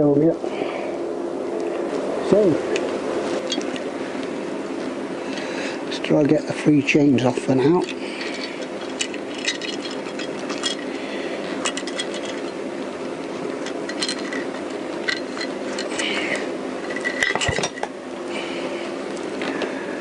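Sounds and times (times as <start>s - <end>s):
steady low hum: 0.0s - 20.0s
metal chain clinking and rattling: 8.2s - 11.0s, 11.6s - 12.6s, 13.6s - 16.2s, 16.8s - 17.9s.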